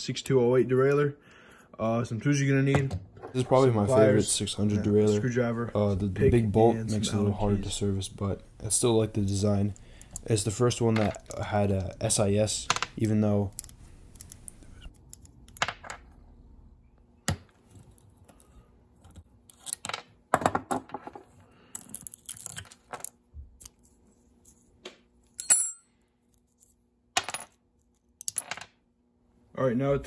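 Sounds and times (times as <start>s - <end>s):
small metal parts clicking: 13.0s - 15.7s, 21.7s - 23.9s.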